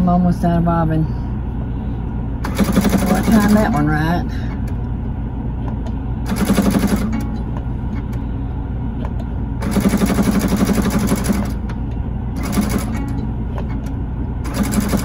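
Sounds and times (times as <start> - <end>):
steady low hum: 0.0 - 15.0
sewing machine stitching: 14.5 - 15.0.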